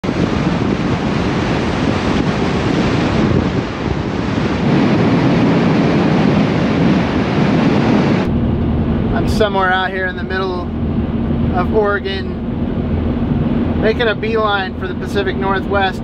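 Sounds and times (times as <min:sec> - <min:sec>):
road noise: 0:00.0 - 0:16.0
wind rushing on microphone: 0:00.0 - 0:16.0.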